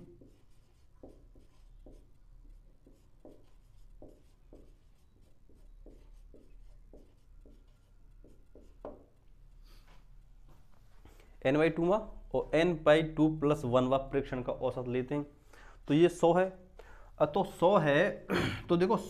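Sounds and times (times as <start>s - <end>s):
pen writing strokes: 0.0s - 9.2s.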